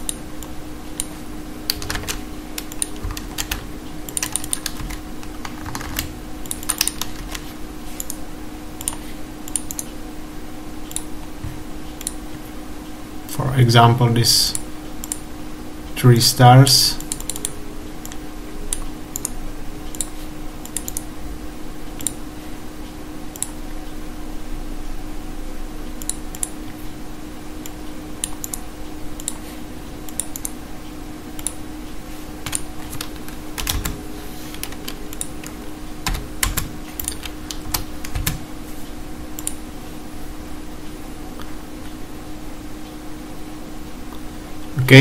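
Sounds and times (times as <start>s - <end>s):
steady low hum: 0.0s - 45.0s
keyboard keystrokes: 1.7s - 8.2s, 32.4s - 38.4s.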